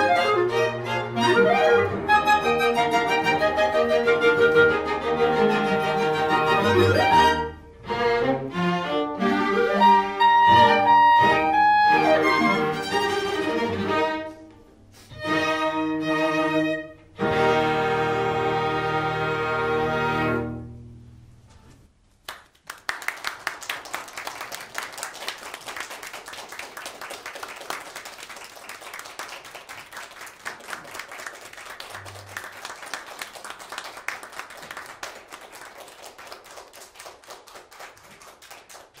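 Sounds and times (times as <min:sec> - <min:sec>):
clarinet and string quartet chord: 0:00.0 - 0:21.0
audience applause: 0:22.3 - 0:39.0.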